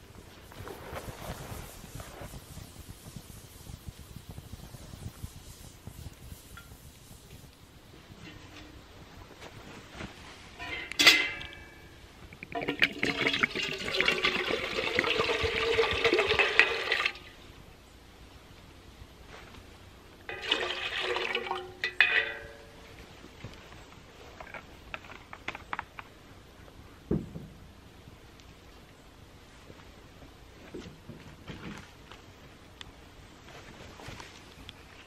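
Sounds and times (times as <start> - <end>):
water pouring into metal pot: 12.4 - 17.3, 20.3 - 22.6.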